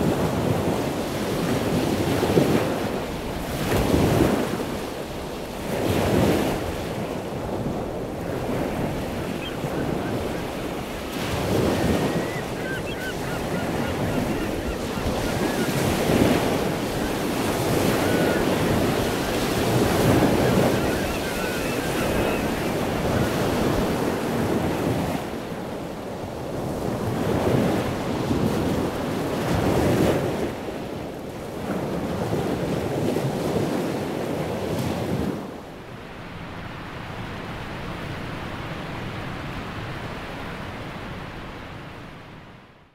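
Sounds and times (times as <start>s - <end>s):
wind buffeting microphone: 0.0s - 30.8s
ocean waves breaking: 0.0s - 42.4s.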